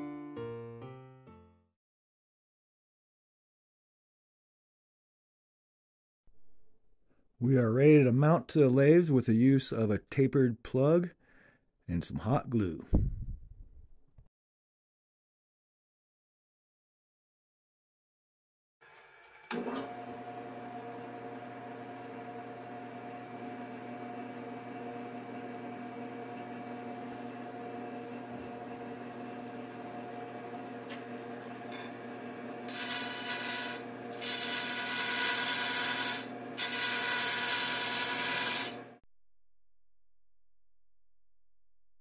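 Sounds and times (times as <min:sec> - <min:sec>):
wood lathe motor hum: 0:18.8 - 0:39.0.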